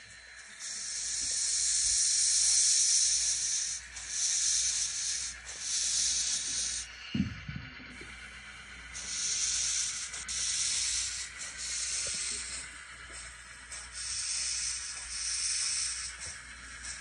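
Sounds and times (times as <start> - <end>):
high steam hiss: 0.0 - 7.1, 8.4 - 17.0
short low thump: 7.2 - 7.7.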